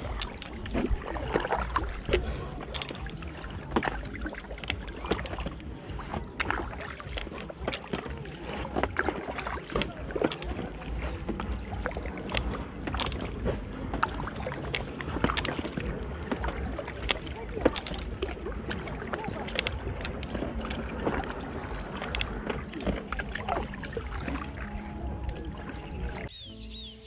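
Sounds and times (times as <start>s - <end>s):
paddle water splashes and drips: 0.0s - 26.6s.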